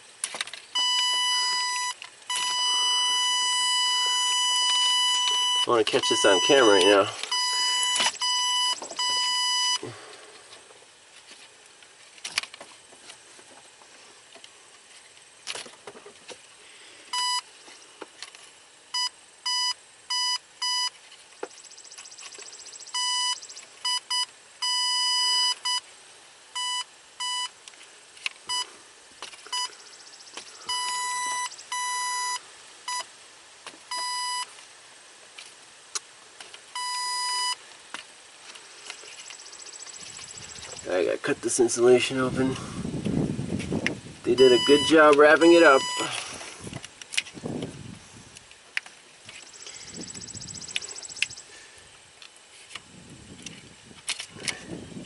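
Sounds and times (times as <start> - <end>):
high-pitched tester beeping: 0.8 - 9.8, 17.1 - 17.5, 18.9 - 21.0, 21.6 - 25.8, 26.6 - 27.6, 28.5 - 28.7, 29.5 - 33.1, 33.9 - 34.5, 36.8 - 37.6, 39.2 - 40.9, 44.3 - 46.2, 49.5 - 51.5.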